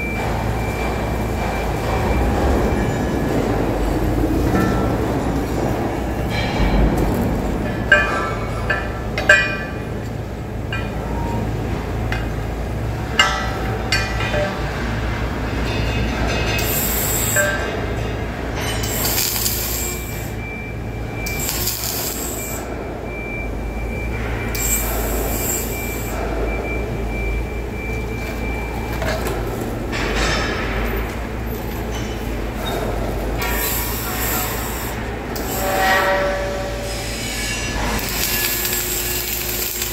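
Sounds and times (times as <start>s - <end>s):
welding equipment humming: 16.6s - 23.0s, 33.0s - 39.9s.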